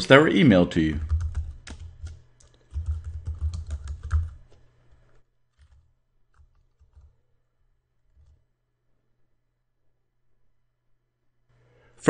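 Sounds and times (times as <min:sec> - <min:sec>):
keyboard typing: 0:01.0 - 0:04.5, 0:05.5 - 0:07.2.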